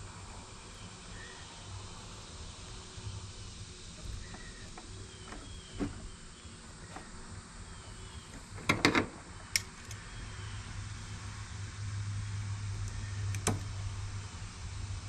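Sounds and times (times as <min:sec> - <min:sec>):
plastic hose handling: 0:04.0 - 0:06.1.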